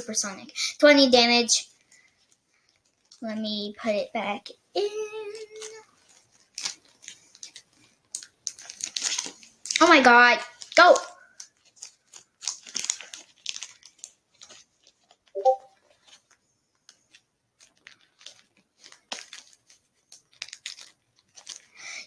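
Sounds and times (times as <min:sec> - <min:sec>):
brief pitched sound: 0:15.4 - 0:15.7.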